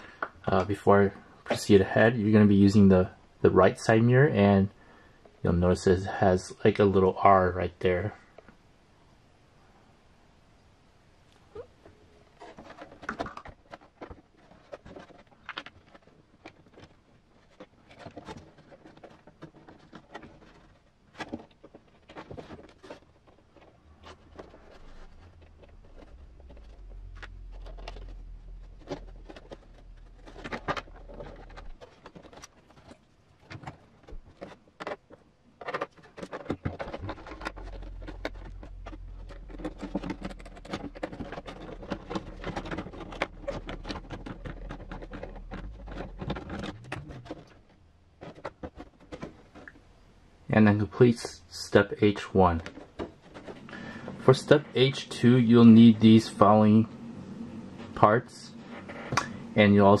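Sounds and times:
plastic parts clicking and tapping: 12.4s - 49.8s
low hum: 23.7s - 33.2s, 36.7s - 60.0s.

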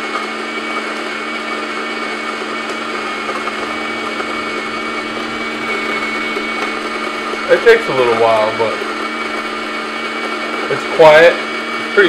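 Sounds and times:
coffee grinder motor hum: 0.0s - 12.0s.

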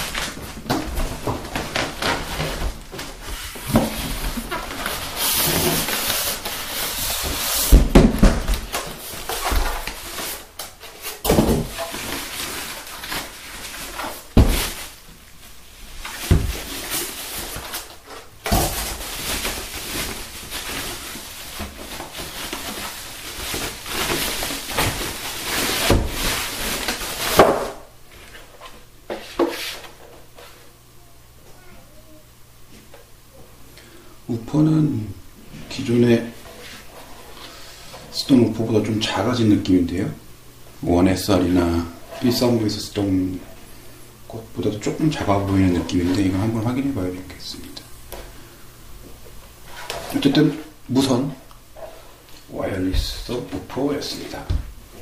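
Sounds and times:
cardboard and styrofoam rustling: 0.0s - 30.6s
knocks and thumps: 7.7s - 8.8s.

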